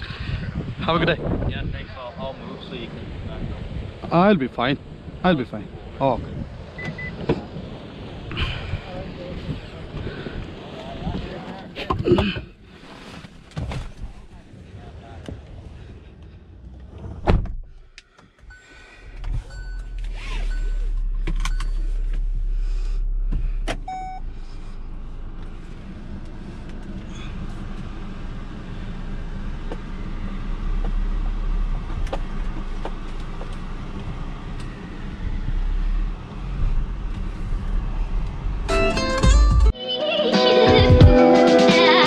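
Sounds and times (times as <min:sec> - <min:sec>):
car engine running: 0:00.5 - 0:39.7
car door shutting: 0:06.8 - 0:07.5, 0:16.8 - 0:18.5, 0:19.1 - 0:22.4, 0:23.0 - 0:24.3
dashboard chime beeps: 0:23.9 - 0:24.2.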